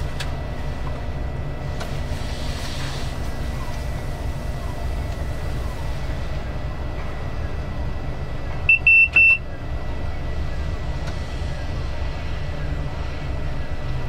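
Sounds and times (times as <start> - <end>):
diesel locomotive engine rumble: 0.0 - 14.0
short electronic beeps: 8.7 - 9.4.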